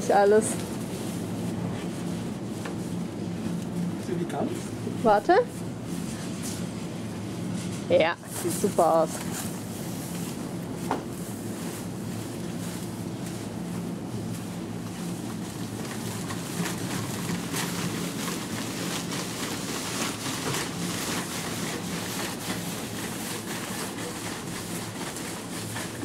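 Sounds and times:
blower fan whirring: 0:00.0 - 0:26.0
shopping cart rattling: 0:15.2 - 0:26.0.

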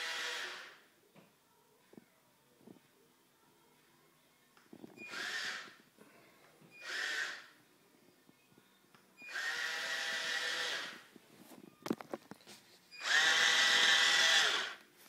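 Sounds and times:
small electric motors whining: 0:05.0 - 0:05.7, 0:06.8 - 0:07.5, 0:09.3 - 0:11.0, 0:13.0 - 0:14.8.

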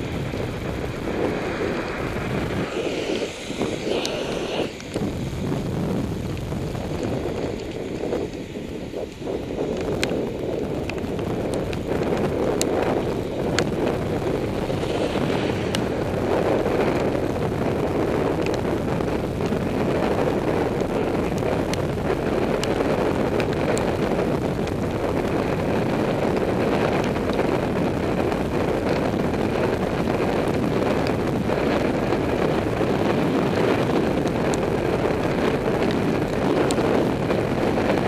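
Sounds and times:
tyres hissing on wet road: 0:00.0 - 0:05.9, 0:13.0 - 0:18.0
wind rushing over microphone: 0:00.0 - 0:38.0.

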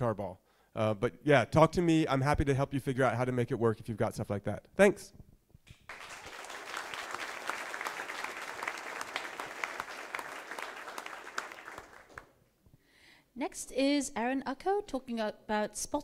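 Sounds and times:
audience applauding: 0:05.9 - 0:12.3.

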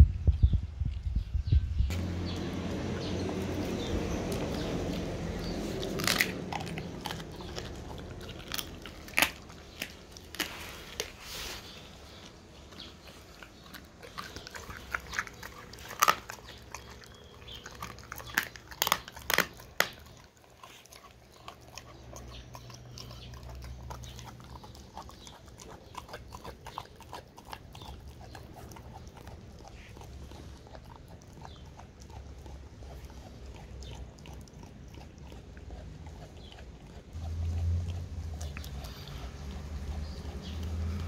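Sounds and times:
low rumble: 0:00.0 - 0:10.0
dog chewing: 0:01.9 - 0:41.0
dog crunching bone: 0:01.9 - 0:41.0.

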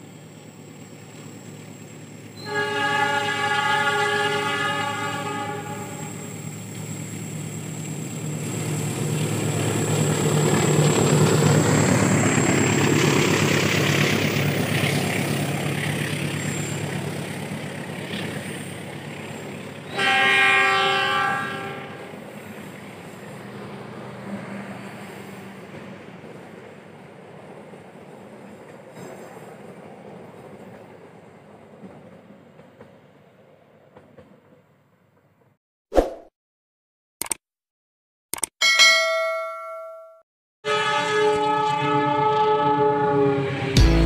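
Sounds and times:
diesel locomotive engine rumble: 0:00.0 - 0:32.9
train horn: 0:02.4 - 0:06.5, 0:19.9 - 0:22.1, 0:40.6 - 0:44.0.

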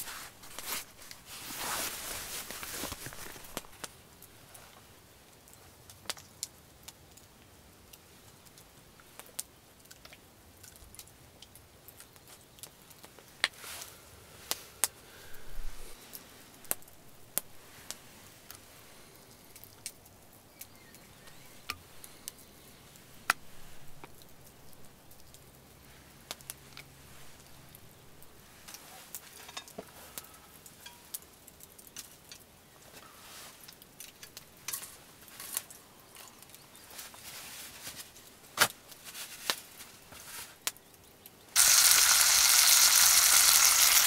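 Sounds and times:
campfire crackling: 0:00.0 - 0:44.0
sharp pops of burning wood: 0:05.8 - 0:07.3.

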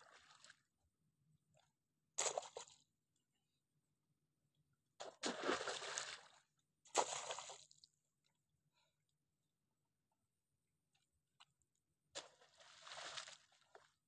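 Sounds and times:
wet mud splashing: 0:05.0 - 0:06.3, 0:06.9 - 0:07.8, 0:12.2 - 0:13.9.

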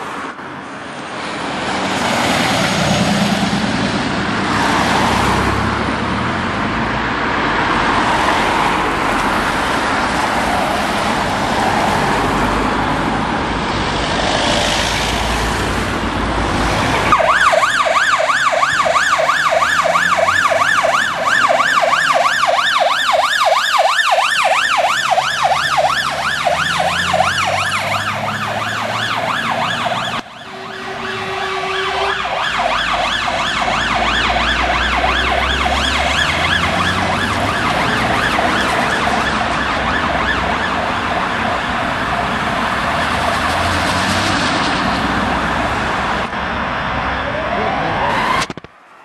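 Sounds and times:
road noise: 0:00.0 - 0:49.0
fire engine siren yelping: 0:16.7 - 0:49.0.

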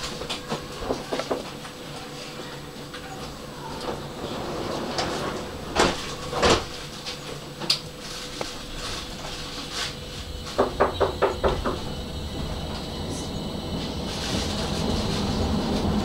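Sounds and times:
faint hum: 0:00.0 - 0:16.0
tram rumbling on track: 0:00.0 - 0:16.0.

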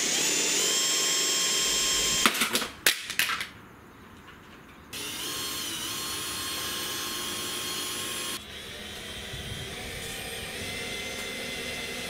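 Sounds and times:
cordless drill boring into metal: 0:00.0 - 0:02.3, 0:05.0 - 0:12.0.

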